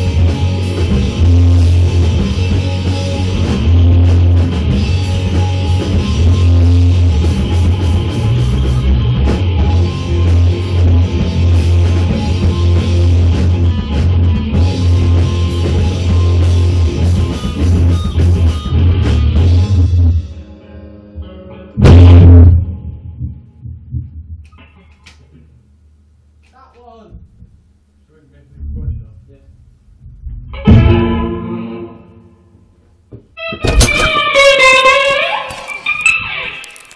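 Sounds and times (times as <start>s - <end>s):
drum kit: 0.0s - 20.4s, 21.8s - 24.8s, 29.9s - 31.6s, 33.1s - 36.9s
heavy bass line: 0.0s - 20.4s, 21.8s - 24.4s
rock music: 0.0s - 23.7s, 30.3s - 32.6s, 33.4s - 36.9s
electric guitar: 0.0s - 25.6s, 30.0s - 36.9s.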